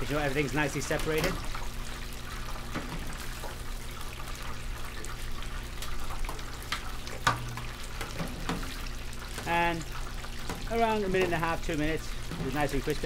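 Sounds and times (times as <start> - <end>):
deep-frying sizzle with pops: 0.0 - 13.0.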